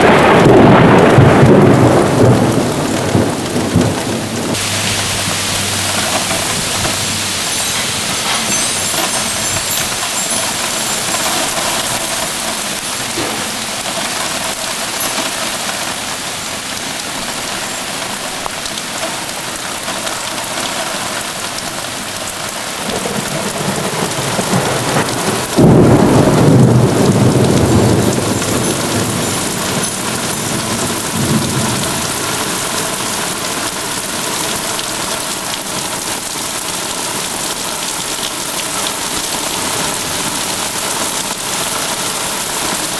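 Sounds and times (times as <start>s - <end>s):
thunder crack and rumble: 0.0s - 7.3s, 22.8s - 32.8s
heavy rain hissing: 0.0s - 42.9s.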